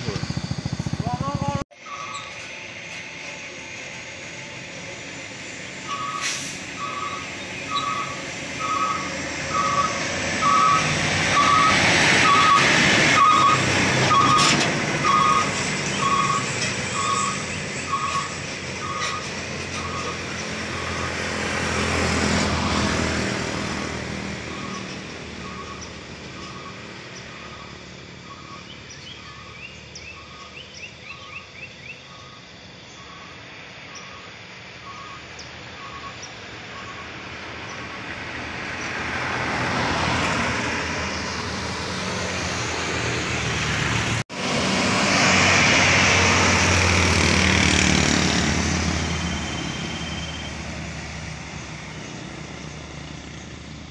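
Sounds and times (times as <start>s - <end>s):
warning beeper: 0.0s - 2.4s, 6.8s - 19.3s
heavy trucks passing: 0.0s - 30.8s, 32.6s - 53.9s
birds chirping: 24.5s - 33.3s.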